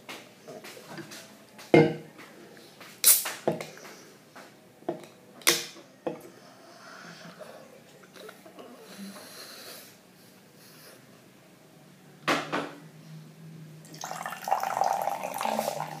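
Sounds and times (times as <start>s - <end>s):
can opening snap and hiss: 3.0s - 3.4s.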